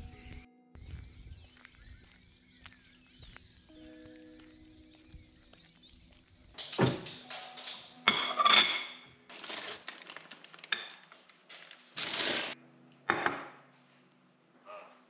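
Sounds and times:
crockery clinking: 6.6 - 9.6
plate and mug set down on counter: 13.1 - 13.6.

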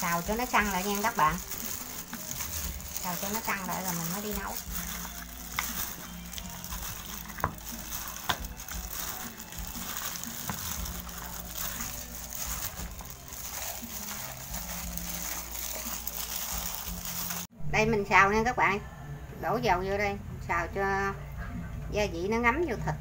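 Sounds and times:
plastic glove crinkling: 0.0 - 17.5
wet squishing of meat: 0.0 - 17.5.

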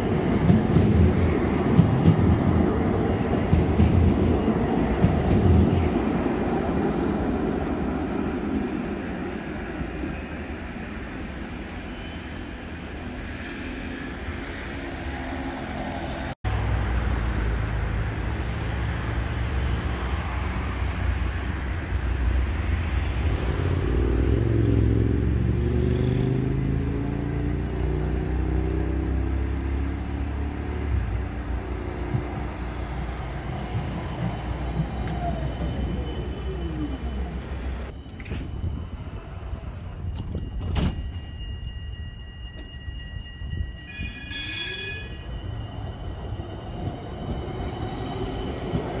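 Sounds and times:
tram rumbling: 0.0 - 49.0.

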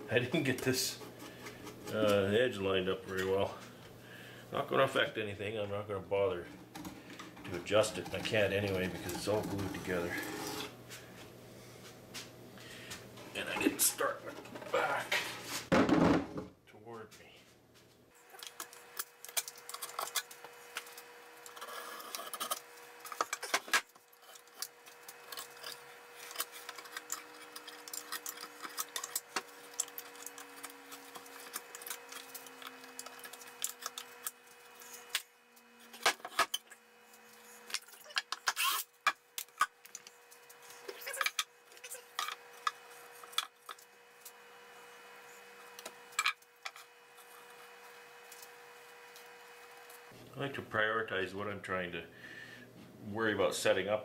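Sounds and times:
wood scraping and rubbing: 6.6 - 10.8, 19.6 - 35.2.

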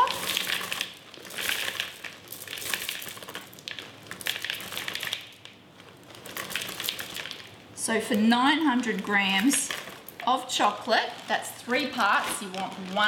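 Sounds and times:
chocolate pieces clattering into bowl: 0.0 - 7.5
plastic bag crinkling: 0.0 - 13.0.

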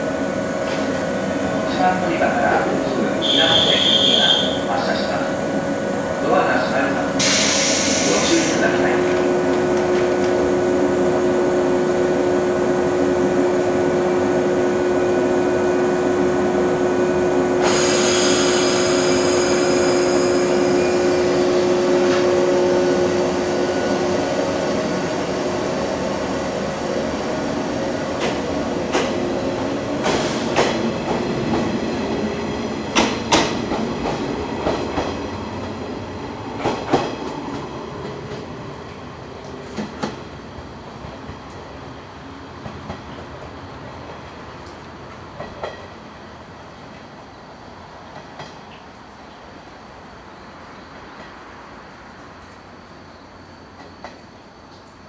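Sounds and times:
electric train humming: 0.0 - 45.4
train wheels clicking over rail joints: 28.2 - 29.2, 30.0 - 31.7, 32.9 - 35.2.

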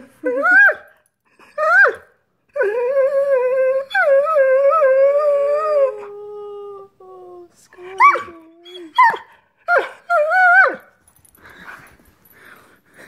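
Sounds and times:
dog whining and yowling: 0.2 - 6.6, 8.0 - 11.8.

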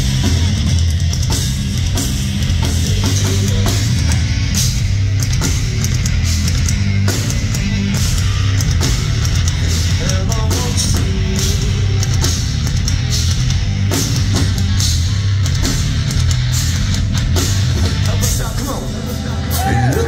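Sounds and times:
electric bass line: 0.0 - 20.0
live heavy rock band: 0.0 - 20.0
pounding drums: 0.0 - 20.0.

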